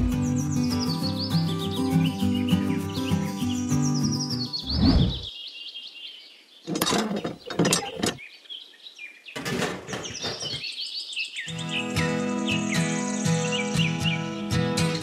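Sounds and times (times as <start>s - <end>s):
small birds chirping: 0.0s - 15.0s
plastic pipe parts scraping and clicking: 6.7s - 8.2s.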